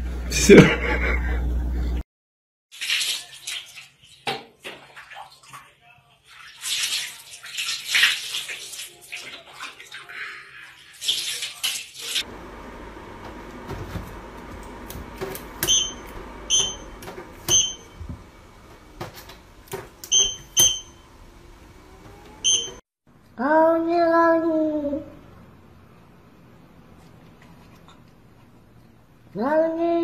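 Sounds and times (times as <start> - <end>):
water splashing in a tub: 2.7 - 12.3
steady low hum: 12.2 - 22.8
short electronic beeps: 15.6 - 18.0, 20.1 - 21.0, 22.4 - 22.8.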